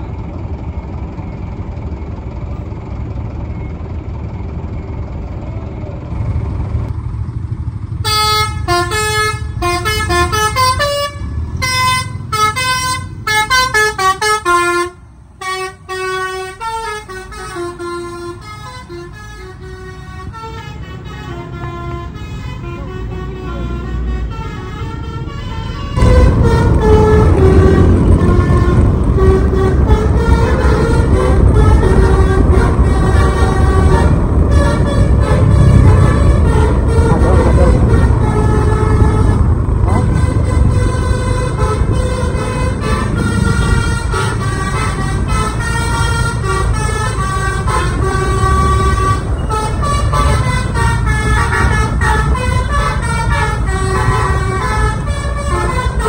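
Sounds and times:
diesel engine rumble: 0.0 - 56.0
bus horn tooting notes: 8.0 - 56.0
loud dense sound: 22.9 - 56.0.

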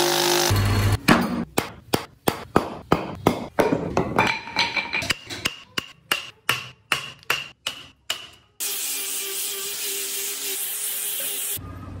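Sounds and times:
hammer striking chisel into wood: 1.6 - 4.1.

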